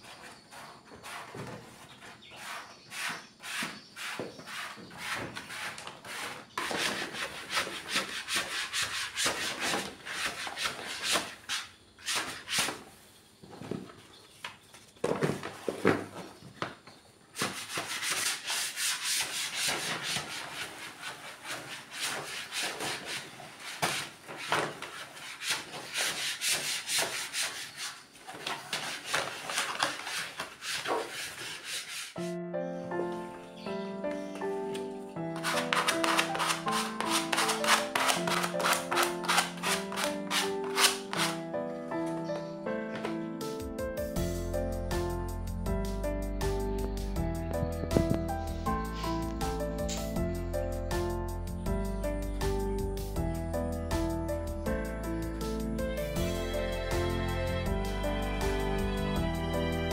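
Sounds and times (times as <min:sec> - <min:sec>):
squeegee scraping vinyl sheet: 0:00.0 - 0:12.9, 0:17.4 - 0:32.3, 0:35.4 - 0:41.4.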